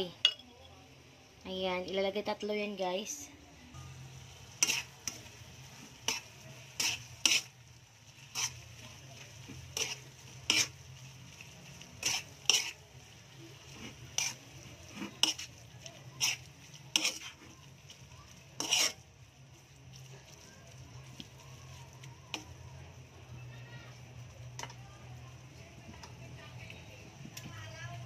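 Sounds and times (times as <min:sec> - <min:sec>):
faint sizzling: 0:00.0 - 0:28.0
spatula scraping a metal wok: 0:03.8 - 0:20.4, 0:21.0 - 0:22.6.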